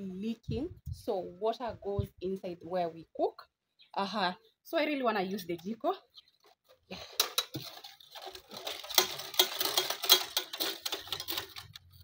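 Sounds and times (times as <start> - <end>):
metal stove clattering: 7.0 - 11.8.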